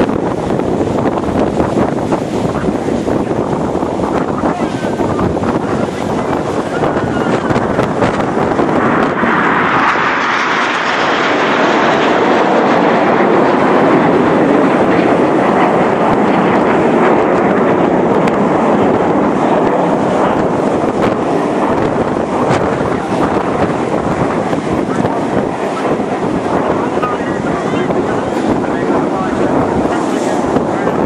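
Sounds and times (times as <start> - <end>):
jets flying past roaring: 0.0 - 31.0.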